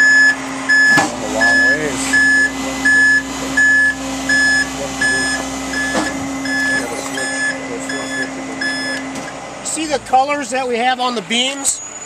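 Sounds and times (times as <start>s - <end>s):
high warning beeps: 0.0s - 9.1s
low truck hum: 0.0s - 12.0s.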